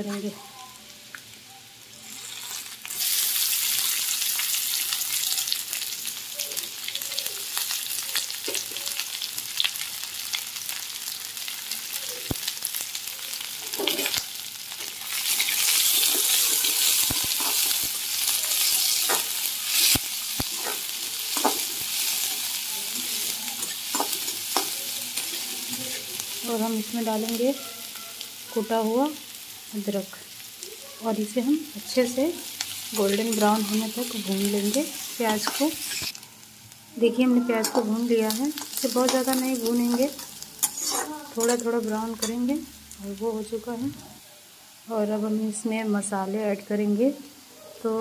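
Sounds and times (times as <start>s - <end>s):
onion sizzling in hot oil: 0.0s - 48.0s
spatula scraping pan: 39.9s - 42.4s.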